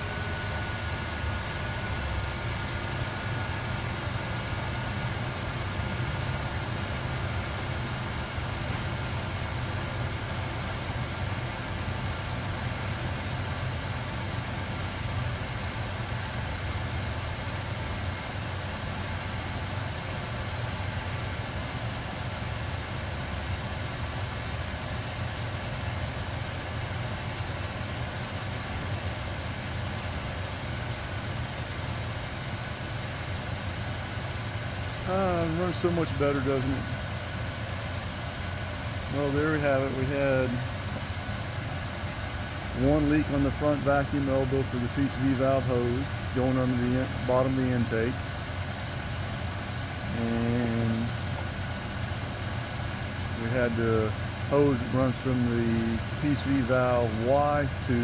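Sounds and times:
truck engine idling: 0.0 - 58.0.

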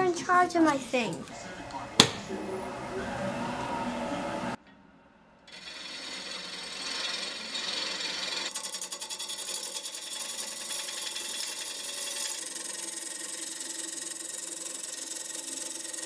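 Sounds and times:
lathe gouge scraping wood: 5.5 - 16.0.

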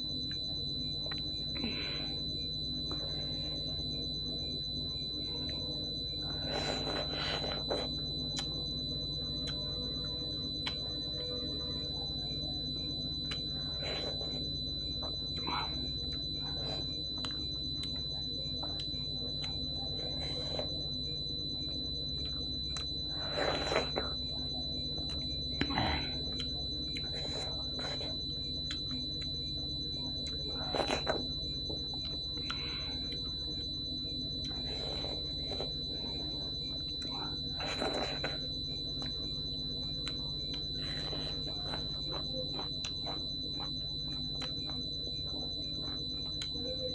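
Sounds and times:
high-pitched electronic whine: 0.0 - 46.9
low hum: 0.0 - 46.9
wet chewing sounds: 39.9 - 46.6.

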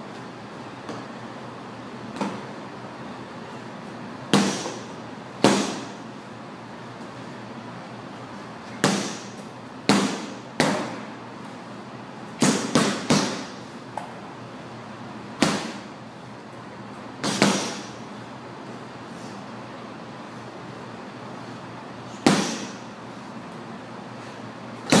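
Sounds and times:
punches hitting heavy bag: 4.3 - 4.8, 5.4 - 6.0, 8.8 - 11.0, 12.4 - 13.5, 15.4 - 15.9, 17.2 - 17.9, 22.2 - 22.8.

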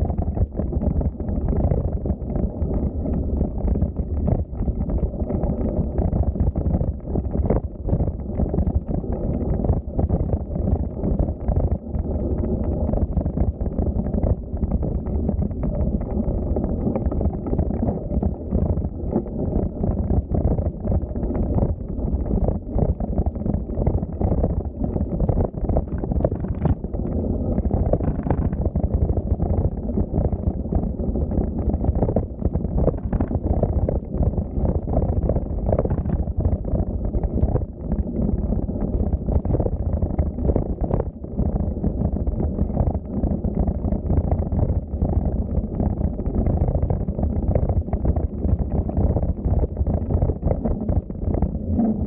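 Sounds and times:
wind buffeting microphone: 18.8 - 41.2.

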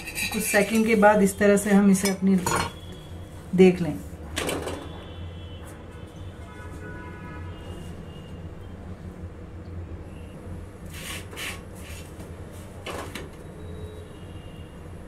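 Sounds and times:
flatbread scraping on hot griddle: 10.9 - 12.1.

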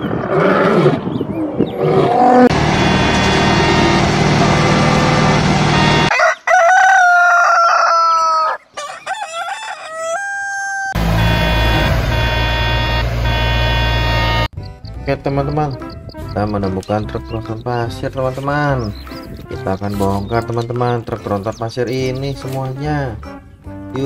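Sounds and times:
steady drone: 2.4 - 6.1, 11.0 - 14.5
road roller engine running: 2.5 - 6.1, 11.0 - 14.5
rooster crowing: 5.8 - 11.5.

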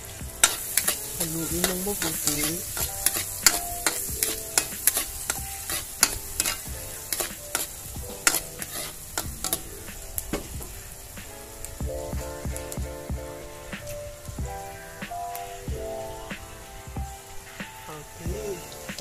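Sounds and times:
garlic and onion sizzling: 0.0 - 19.0
metal ladle scraping wok: 0.4 - 9.7.

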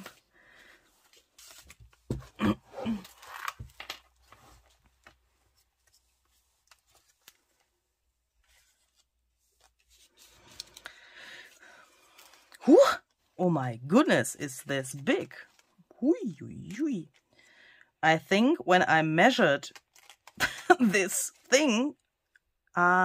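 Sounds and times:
paper rustling and crinkling: 0.0 - 2.3, 2.9 - 10.8, 19.7 - 21.8.

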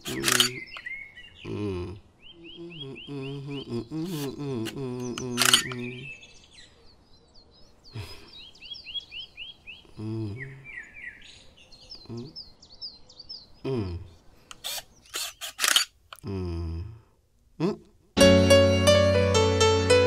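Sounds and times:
camera shutter clicks: 0.0 - 0.6, 5.2 - 5.9, 14.5 - 15.9
small birds chirping: 0.0 - 17.0.

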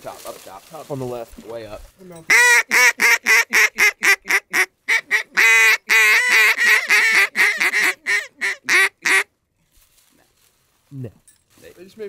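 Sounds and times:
duck call quacks: 2.3 - 9.3.

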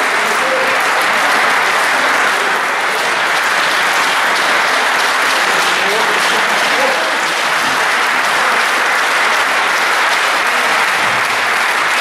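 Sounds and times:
spectators applauding: 0.0 - 12.0.

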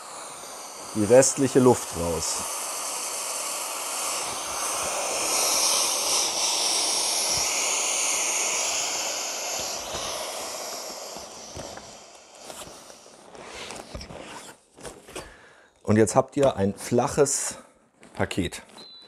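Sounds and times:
air hissing out of valve: 0.0 - 13.9.

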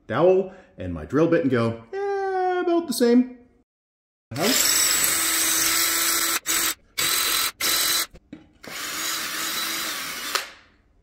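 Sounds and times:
cordless drill boring into wood: 4.4 - 10.6.

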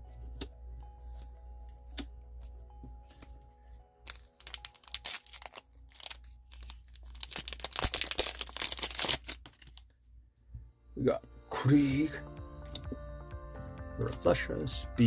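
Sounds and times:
foil wrapper crinkling and tearing: 4.0 - 10.0.

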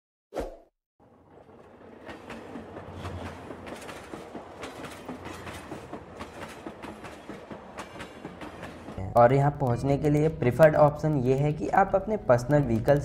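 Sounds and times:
train low rumble: 1.0 - 13.0
train wheels clattering: 1.4 - 10.2.

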